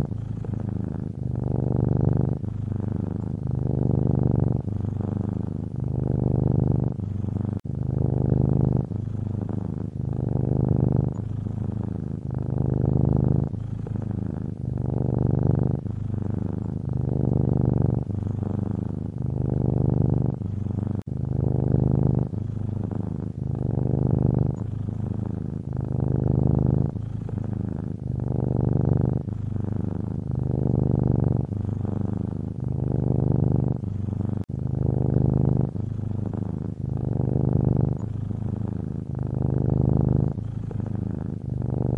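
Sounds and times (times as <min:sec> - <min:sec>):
cat purring: 0:00.0 - 0:41.9.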